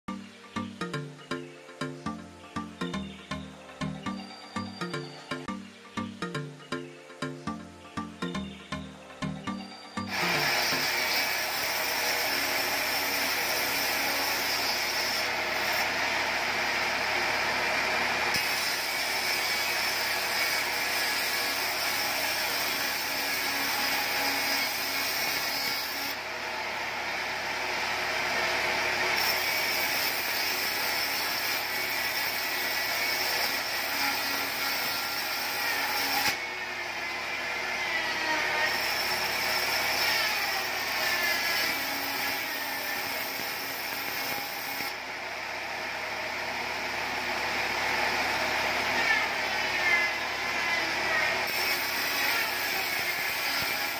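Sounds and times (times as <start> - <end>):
band saw ripping wood: 10.1 - 15.8.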